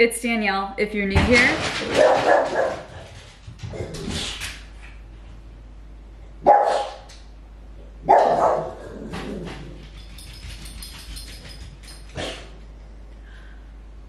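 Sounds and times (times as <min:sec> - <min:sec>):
dog barking: 0:01.9 - 0:02.9, 0:06.4 - 0:07.1, 0:08.0 - 0:08.8.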